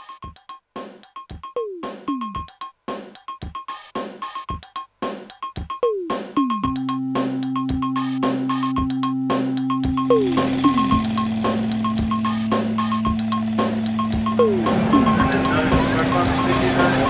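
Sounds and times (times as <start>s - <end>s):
drum machine beat: 0.0s - 17.0s
synth keyboard line: 6.4s - 17.0s
falling synth pitch swoops: 6.7s - 17.0s
low synth chord: 6.7s - 17.0s.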